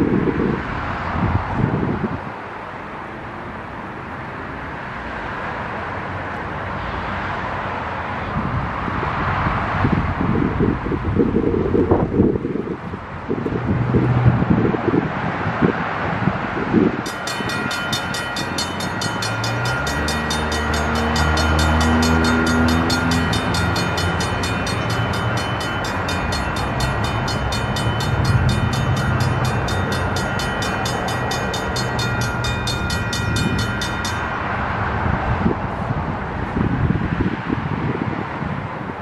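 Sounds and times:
train rumble: 0:16.1 - 0:37.2
crossing bell ringing: 0:17.0 - 0:34.9.

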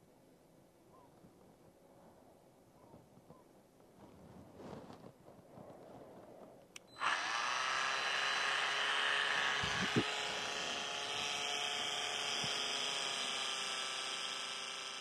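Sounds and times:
electric polisher running: 0:07.0 - 0:15.0.

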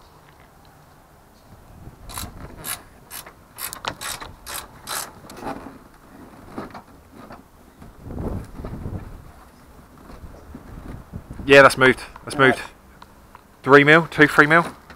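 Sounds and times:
ratchet spanner clicking: 0:02.1 - 0:05.2.

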